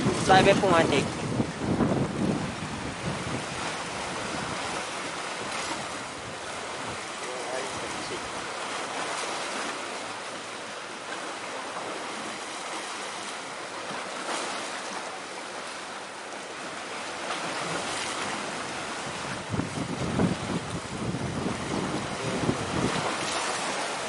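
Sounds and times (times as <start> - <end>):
wind buffeting microphone: 0.0 - 8.7, 17.5 - 24.0
surf washing in: 0.0 - 24.0.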